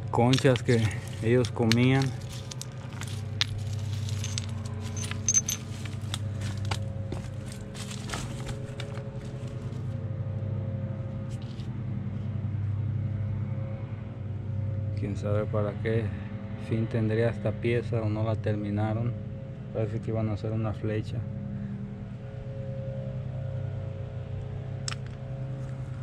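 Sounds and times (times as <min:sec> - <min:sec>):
low engine hum: 0:00.0 - 0:26.0
clinks of shell and flint: 0:00.3 - 0:06.6.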